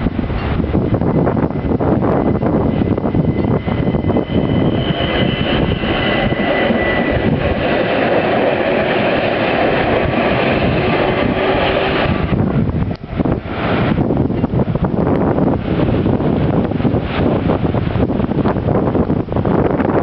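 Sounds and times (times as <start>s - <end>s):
wind on microphone: 0.0s - 20.0s
train wheels rolling on rails: 0.2s - 18.7s
faint high whine: 1.4s - 14.6s.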